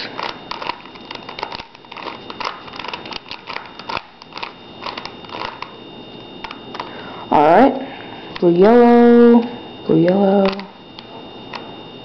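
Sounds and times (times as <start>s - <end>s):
puzzle cube clicking: 0.2s - 5.7s.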